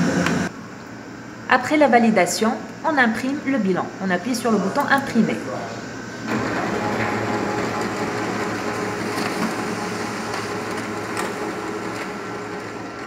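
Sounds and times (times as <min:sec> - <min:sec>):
laser printer printing: 0:04.5 - 0:13.0.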